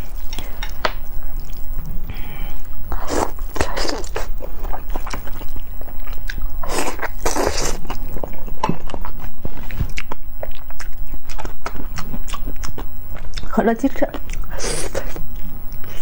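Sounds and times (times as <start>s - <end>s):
wet chewing and smacking: 3.0s - 13.5s.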